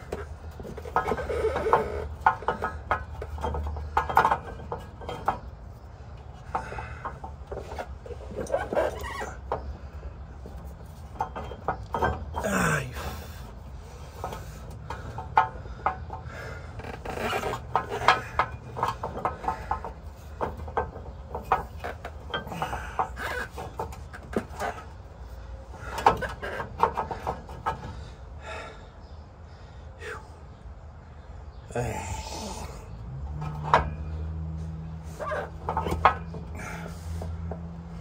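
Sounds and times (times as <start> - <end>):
metal clicks knocks and scrapes: 33.1 - 36.5.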